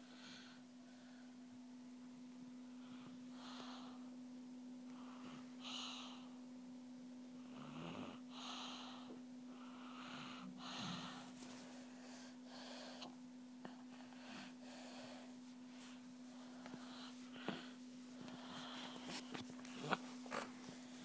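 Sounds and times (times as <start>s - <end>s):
steady low hum: 0.0s - 21.0s
child breathing heavily: 10.4s - 20.0s.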